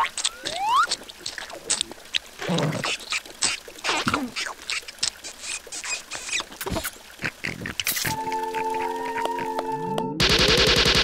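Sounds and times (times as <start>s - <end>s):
squeaky cartoon vocal noises: 0.0s - 1.0s, 2.4s - 9.6s
raindrops pattering: 0.0s - 9.7s.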